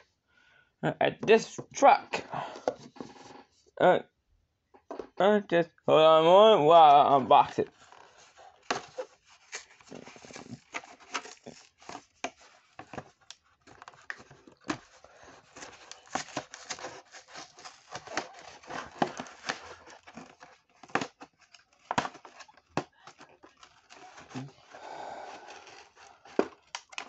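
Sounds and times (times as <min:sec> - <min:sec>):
plastic blister pack crinkling: 0:07.7 - 0:27.0.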